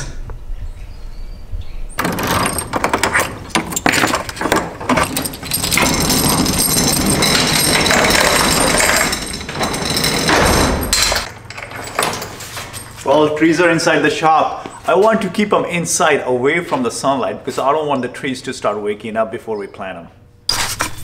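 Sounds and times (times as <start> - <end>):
metal chain clattering: 2.0 - 13.5
door slats rattling: 2.0 - 13.6.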